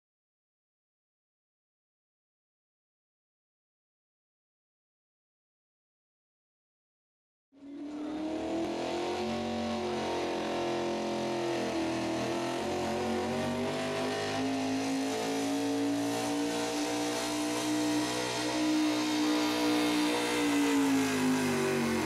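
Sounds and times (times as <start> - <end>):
truck engine running hard: 7.6 - 22.0.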